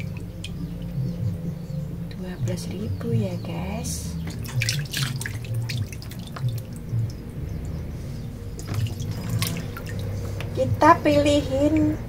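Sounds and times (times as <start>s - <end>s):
water splashing in a basin: 0.0s - 1.3s, 4.2s - 7.3s, 8.5s - 10.6s.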